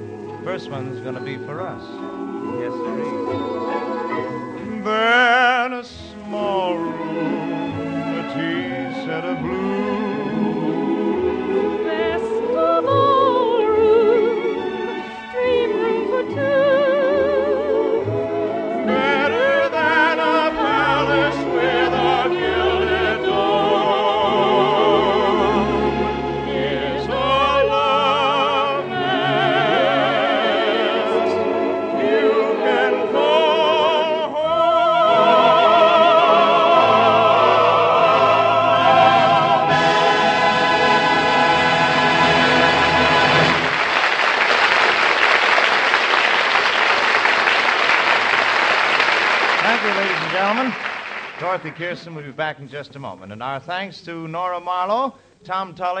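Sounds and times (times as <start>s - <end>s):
studio orchestra: 0.0s - 56.0s
operatic voices singing: 0.5s - 43.8s.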